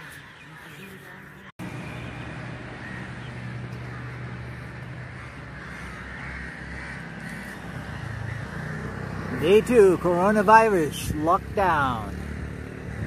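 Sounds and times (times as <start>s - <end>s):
crows cawing: 2.6s - 10.4s.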